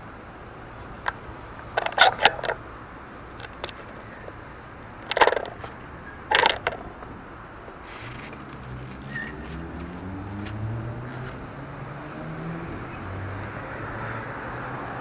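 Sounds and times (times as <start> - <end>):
city street traffic hum: 0.0 - 15.0
sharp clicks and clatter: 1.0 - 2.6, 3.3 - 4.2, 5.0 - 9.0.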